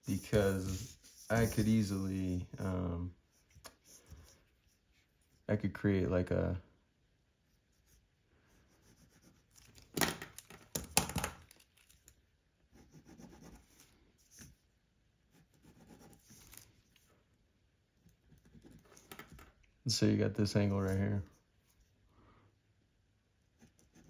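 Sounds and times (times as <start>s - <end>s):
pen scratching on paper: 0.0s - 1.9s, 7.5s - 9.6s, 12.7s - 14.5s, 15.3s - 16.6s, 23.5s - 24.0s
pen handling rustles and clicks: 18.8s - 19.6s.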